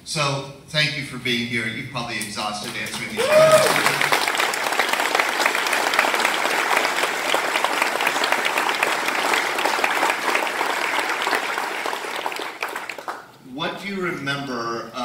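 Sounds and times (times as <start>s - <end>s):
audience applauding: 2.6s - 13.4s.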